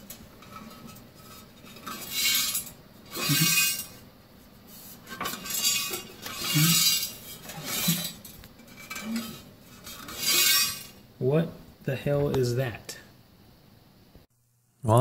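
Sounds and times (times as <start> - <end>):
loose metal pieces rattling in drum: 0.0 - 4.0, 5.1 - 11.0.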